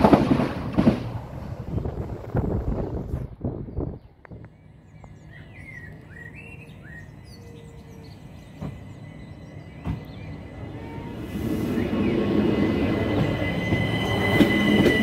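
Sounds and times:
train rumble: 0:00.0 - 0:15.0
small birds chirping: 0:03.6 - 0:11.0.

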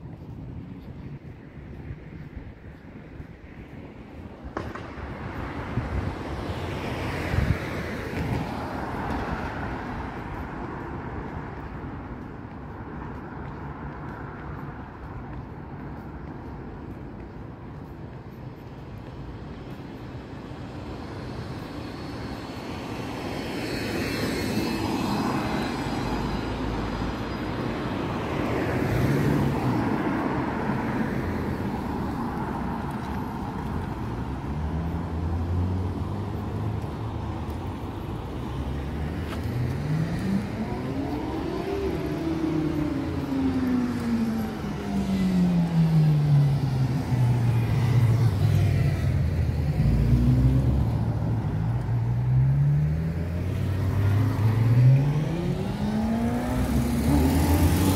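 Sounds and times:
passing vehicles: 0:00.0 - 0:57.9
vehicle engine revving: 0:53.9 - 0:57.9.

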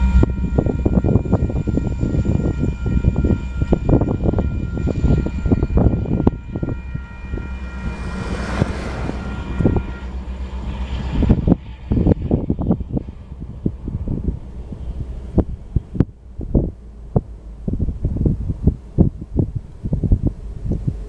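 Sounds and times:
crossing warning bell ringing: 0:00.0 - 0:12.4
train rail clatter and rumble: 0:00.0 - 0:21.0.

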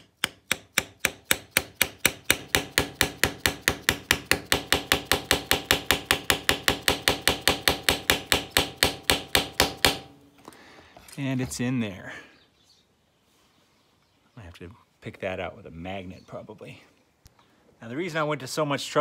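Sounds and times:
hammer tapping metal pipe: 0:00.0 - 0:10.1.

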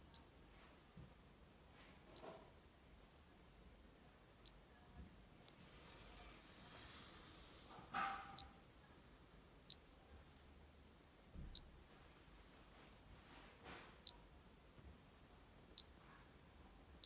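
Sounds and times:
digital watch beeping: 0:00.0 - 0:00.3, 0:04.4 - 0:04.6, 0:11.5 - 0:11.8, 0:15.8 - 0:16.0.

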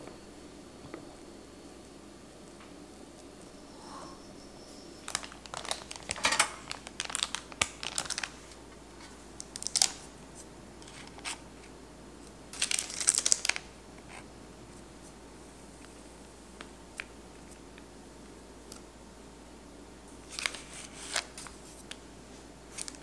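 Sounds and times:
paper crinkling and rustling: 0:05.0 - 0:10.2, 0:12.5 - 0:14.2, 0:20.2 - 0:22.0, 0:22.7 - 0:23.0.

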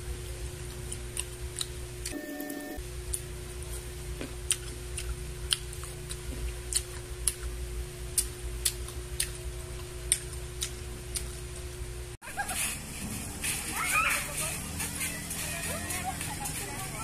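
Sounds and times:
low hum: 0:01.9 - 0:12.2.

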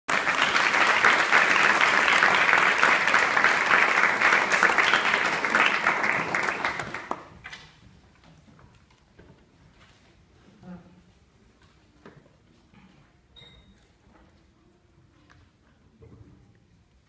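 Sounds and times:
audience applause: 0:00.1 - 0:07.4.

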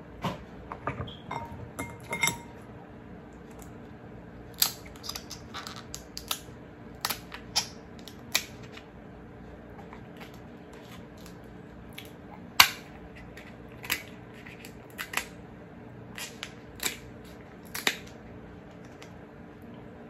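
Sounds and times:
scissors snipping crab shell: 0:04.5 - 0:08.8, 0:13.4 - 0:15.4, 0:16.2 - 0:18.2.

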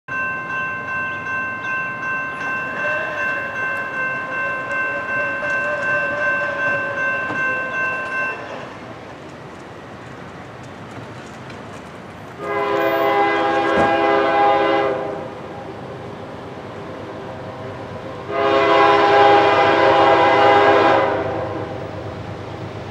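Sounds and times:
railroad crossing bell ringing: 0:00.1 - 0:10.4, 0:12.2 - 0:15.6, 0:17.9 - 0:22.0.

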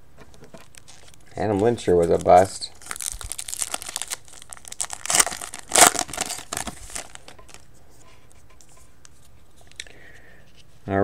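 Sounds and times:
foil wrapper crinkling and tearing: 0:00.6 - 0:07.7.

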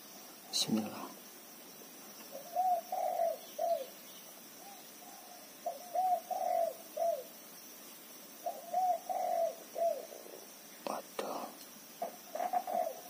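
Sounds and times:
dove cooing: 0:02.3 - 0:04.0, 0:04.6 - 0:07.3, 0:08.4 - 0:10.5, 0:12.0 - 0:13.0.

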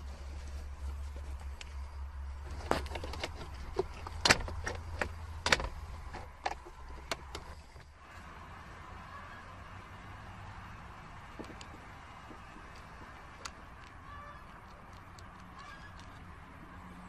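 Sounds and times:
glove box lid clicks and snaps: 0:02.5 - 0:07.5.

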